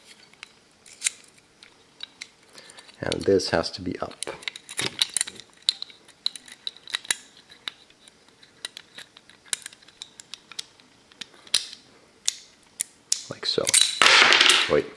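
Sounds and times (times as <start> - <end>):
small metal clicks: 4.0 - 14.0.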